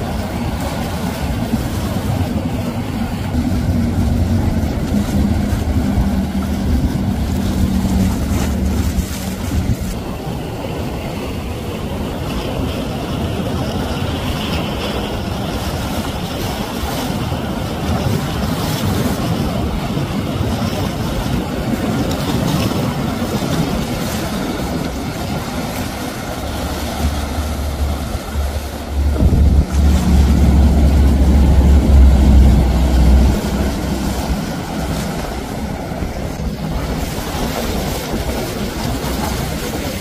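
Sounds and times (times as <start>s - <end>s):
boat engine drone: 0.0s - 40.0s
water rushing off hull: 0.0s - 40.0s
deep low rumble: 1.4s - 10.0s, 26.1s - 39.3s.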